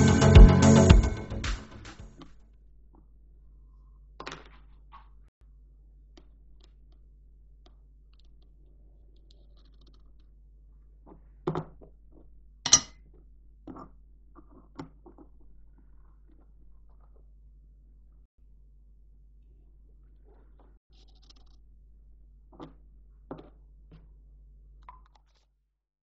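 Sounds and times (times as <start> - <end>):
sharp metal knock: 12.7 - 12.9.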